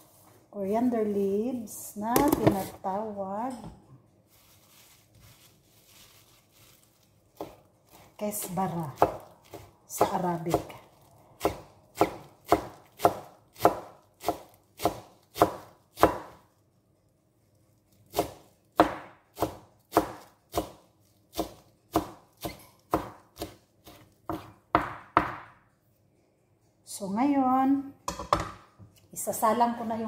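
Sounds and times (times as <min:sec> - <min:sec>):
knife chopping on a cutting board: 0:07.4 - 0:10.8, 0:11.4 - 0:16.4, 0:18.1 - 0:25.6.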